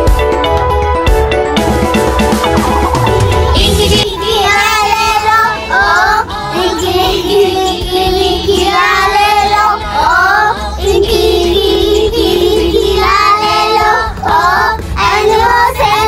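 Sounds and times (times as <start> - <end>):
backing music: 0.0 - 16.0
children singing: 3.4 - 16.0.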